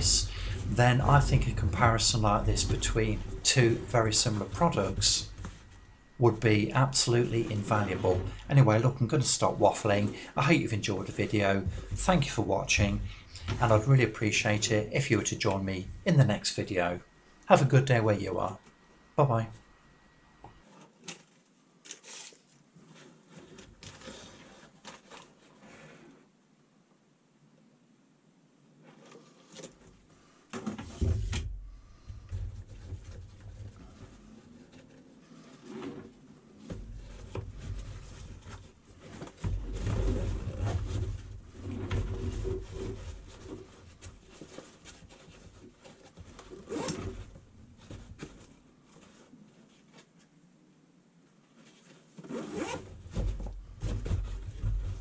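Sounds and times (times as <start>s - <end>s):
soft rustles of fabric: 20.5s - 26.4s, 28.7s - 55.0s.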